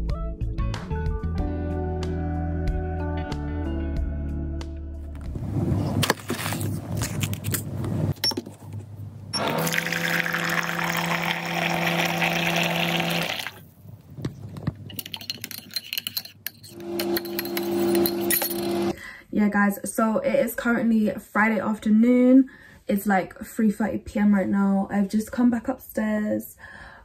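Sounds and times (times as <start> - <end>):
hot water pouring into a mug: 9.4 - 13.6
metal spoon clinking against mug: 14.9 - 19.0
steady hum: 16.6 - 19.0.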